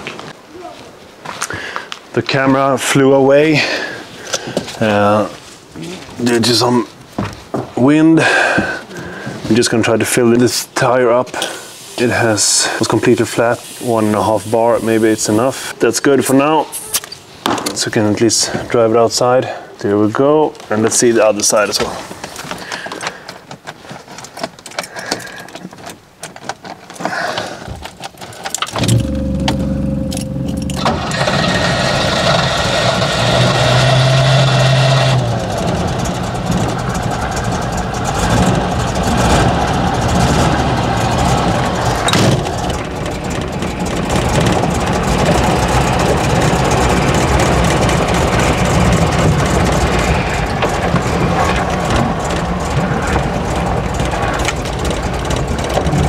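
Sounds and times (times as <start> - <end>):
car engine cranking and starting: 21.7 - 56.0
engine idling: 28.8 - 56.0
clicks and knocks: 35.1 - 56.0.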